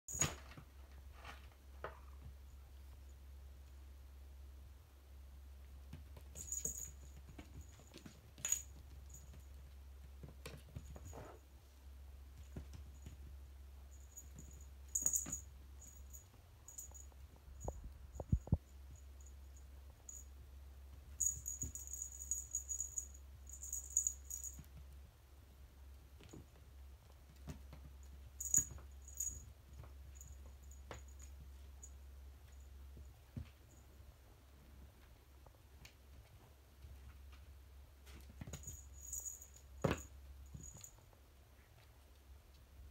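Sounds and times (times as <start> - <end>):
cat wand toy jingling: 6.4 - 9.4, 21.2 - 24.6.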